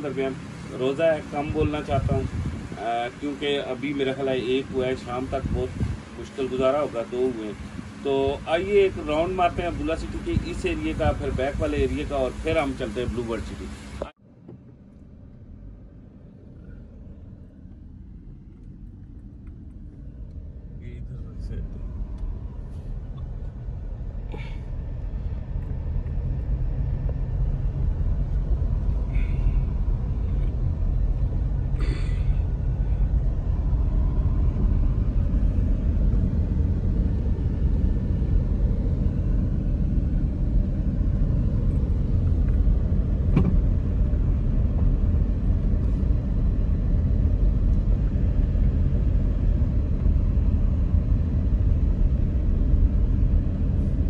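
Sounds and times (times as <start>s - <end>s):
car driving rumble inside cabin: 0.0s - 54.0s.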